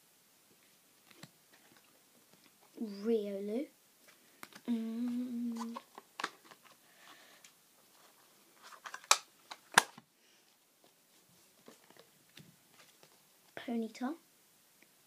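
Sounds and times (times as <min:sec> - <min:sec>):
cards rustling: 0:04.1 - 0:07.3, 0:07.9 - 0:10.0, 0:10.8 - 0:13.2.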